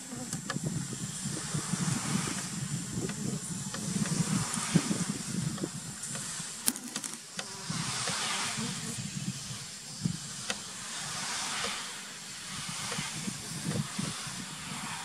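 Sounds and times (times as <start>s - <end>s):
bee colony hissing: 0.0s - 15.0s
bees buzzing: 0.0s - 15.0s
sharp clicks: 6.1s - 7.5s.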